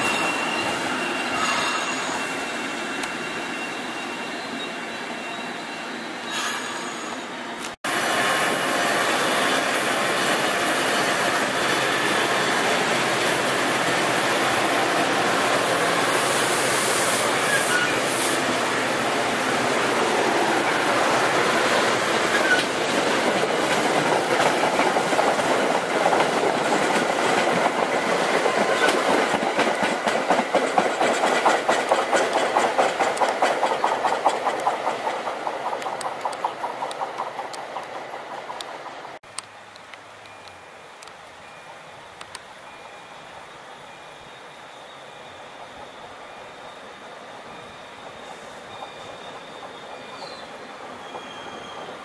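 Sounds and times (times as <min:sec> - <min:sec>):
train wheels on rails: 0:00.0 - 0:52.0
clickety-clack over rail joints: 0:22.2 - 0:39.2.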